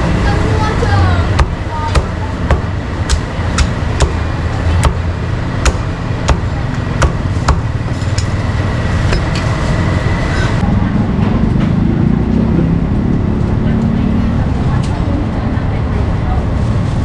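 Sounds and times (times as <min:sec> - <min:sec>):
cleaver chopping on wooden block: 0:01.4 - 0:04.2, 0:04.8 - 0:07.7.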